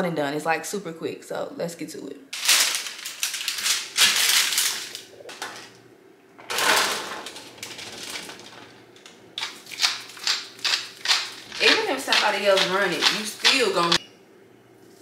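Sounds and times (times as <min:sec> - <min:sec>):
parchment paper rustling: 0:02.4 - 0:05.1.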